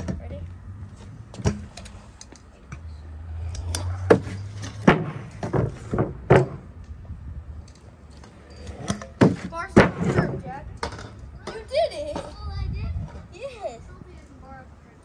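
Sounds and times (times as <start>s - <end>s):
scooter wheels rolling: 0.0s - 14.4s
scooter deck clacking on wood: 3.5s - 6.7s.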